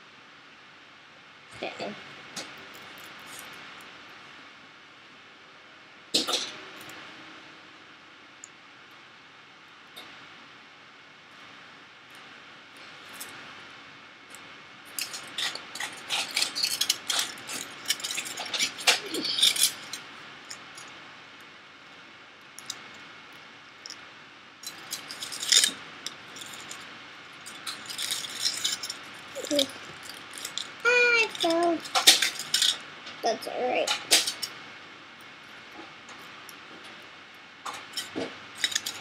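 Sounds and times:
aluminium foil crinkling: 0:14.3 - 0:20.9, 0:24.6 - 0:32.8, 0:37.7 - 0:39.0.

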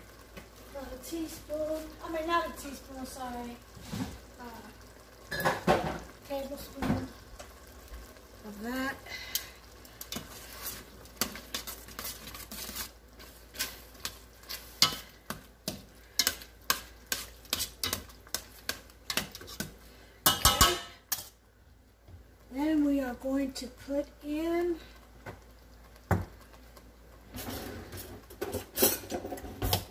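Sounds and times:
sauce simmering sizzle: 0:00.0 - 0:29.9
spoon scraping a metal pot: 0:10.1 - 0:19.7, 0:20.3 - 0:21.4, 0:27.5 - 0:29.9.

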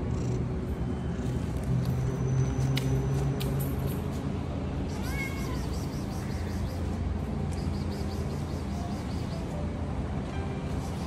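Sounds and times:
cat meowing: 0:05.0 - 0:05.7.

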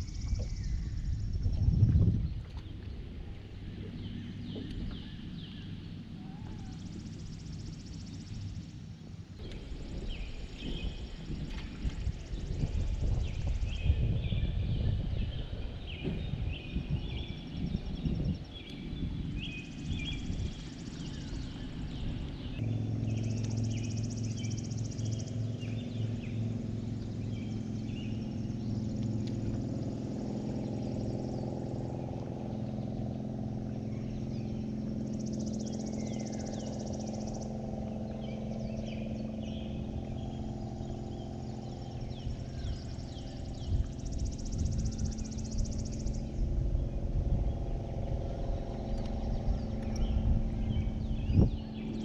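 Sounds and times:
birds chirping: 0:00.0 - 0:52.0
electric trolling motor humming: 0:00.0 - 0:52.0
low rumble: 0:00.0 - 0:52.0
high buzz: 0:19.0 - 0:52.0.

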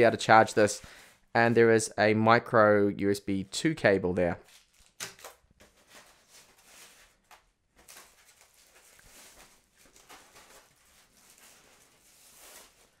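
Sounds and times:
packaging rustling: 0:04.4 - 0:13.0.

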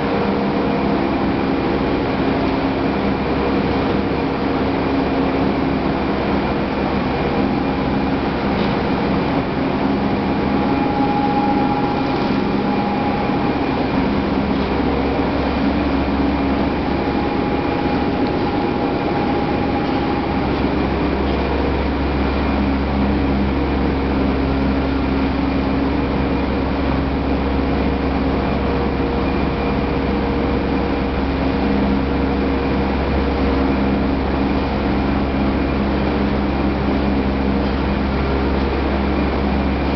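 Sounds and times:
motors and pumps humming: 0:00.0 - 0:39.9
steady machine tones: 0:00.0 - 0:39.9.

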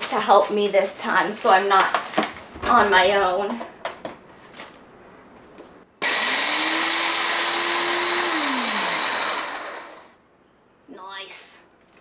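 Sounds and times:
food processor motor whirring: 0:06.0 - 0:10.1.

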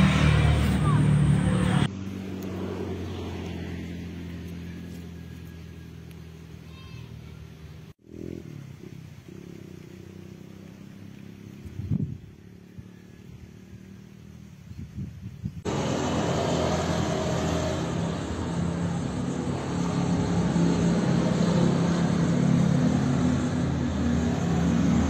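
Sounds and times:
low engine hum: 0:00.0 - 0:25.0
vehicle engine running: 0:00.0 - 0:25.0.

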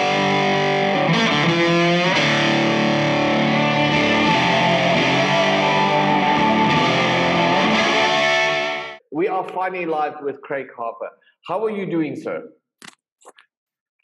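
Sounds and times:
rock music with distorted guitar: 0:00.0 - 0:09.0.

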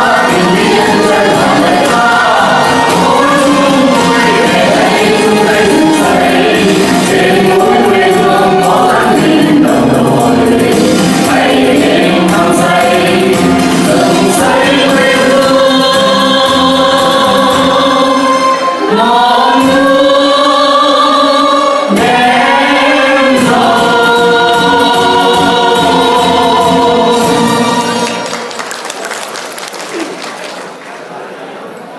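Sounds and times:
instrumental accompaniment: 0:00.0 - 0:20.7
vocal ensemble singing: 0:00.0 - 0:28.3.

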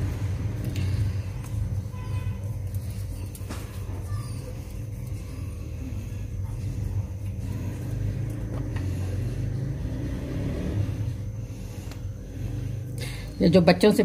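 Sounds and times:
faint constant hum: 0:00.0 - 0:14.0
steady low rumble: 0:04.8 - 0:14.0.

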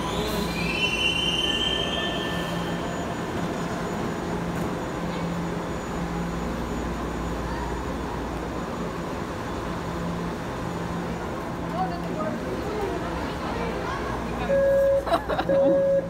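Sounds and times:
train wheels squealing: 0:00.0 - 0:07.8
train low rumble: 0:00.0 - 0:16.0.

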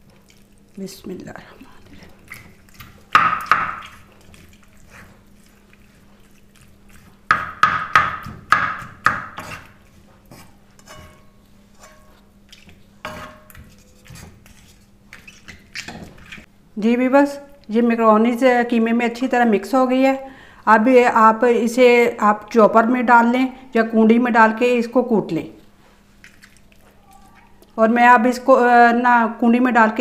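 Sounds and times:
faint steady hum: 0:00.0 - 0:30.0
wooden spatula scraping a pan: 0:09.4 - 0:16.5.

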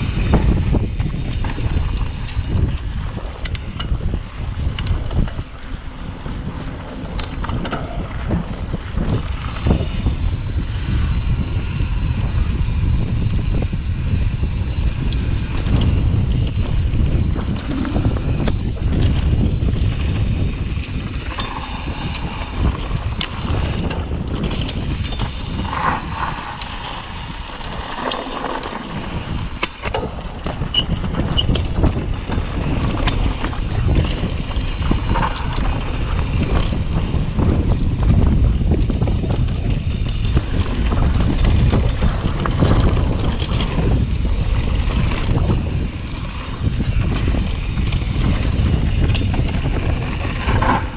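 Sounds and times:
bike rattling and knocking: 0:00.0 - 0:50.9
wind rushing over microphone: 0:00.0 - 0:50.9
tyres rolling over dirt: 0:14.5 - 0:50.9.

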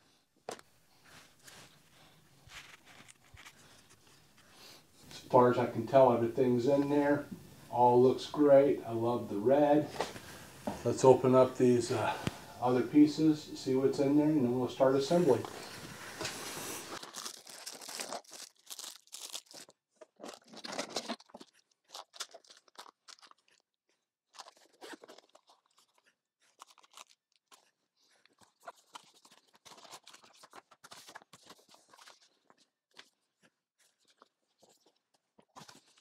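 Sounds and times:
cardboard boxes being unpacked: 0:02.5 - 0:04.1, 0:15.6 - 0:21.5.

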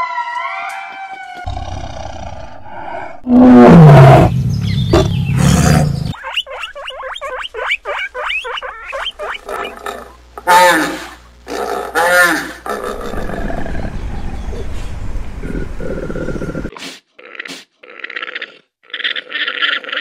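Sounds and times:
tiger roar: 0:01.5 - 0:04.3, 0:09.7 - 0:14.4
high wavering animal calls: 0:06.0 - 0:11.1.

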